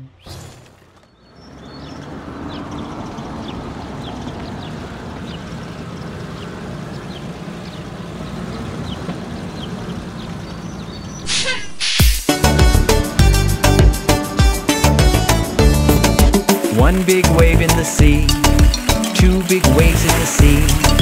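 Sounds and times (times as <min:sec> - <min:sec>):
cartoon truck engine humming: 0:00.0 - 0:21.0
short high falling chirps: 0:11.2 - 0:12.3.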